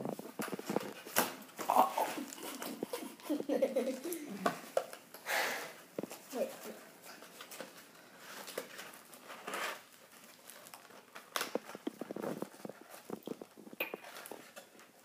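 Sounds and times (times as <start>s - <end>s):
cardboard crackling and clicking: 6.0s - 15.0s
cardboard scraping and tearing: 8.2s - 13.4s.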